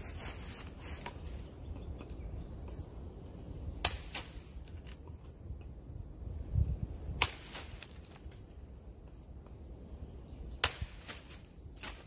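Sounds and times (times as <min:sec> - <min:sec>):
hatchet chopping wood: 0:03.8 - 0:04.4, 0:07.1 - 0:07.7, 0:10.6 - 0:11.2.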